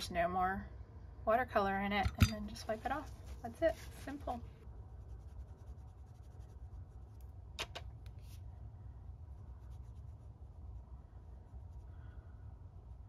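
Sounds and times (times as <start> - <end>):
low steady hum: 0.0 - 13.0
paintbrush strokes on paper: 2.4 - 7.5, 8.1 - 13.0.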